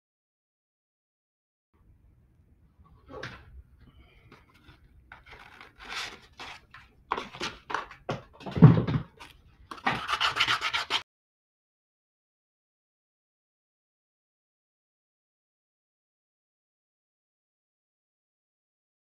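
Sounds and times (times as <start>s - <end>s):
sandpaper rubbing by hand: 9.8s - 11.0s.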